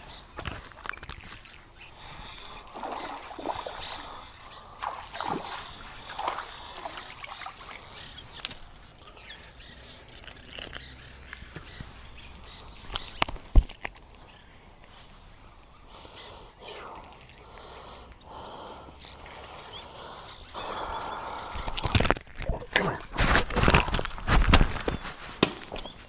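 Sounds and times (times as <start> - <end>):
fish splashing in water: 2.5 - 8.5.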